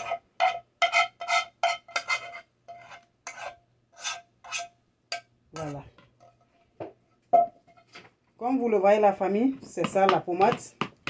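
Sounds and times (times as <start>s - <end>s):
spoon scraping a saucepan: 0.0s - 6.7s.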